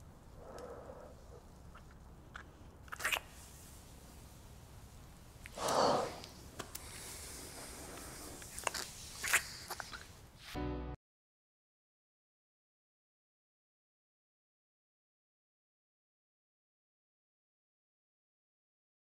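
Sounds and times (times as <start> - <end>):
breathing: 0.4 - 1.4, 5.6 - 8.6
lips smacking while kissing: 1.7 - 3.4, 8.4 - 10.1.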